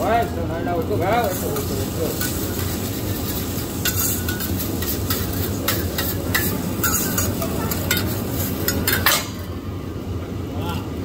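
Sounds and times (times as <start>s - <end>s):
griddle sizzling: 0.0s - 9.7s
metal spatula scraping hot plate: 1.0s - 9.5s.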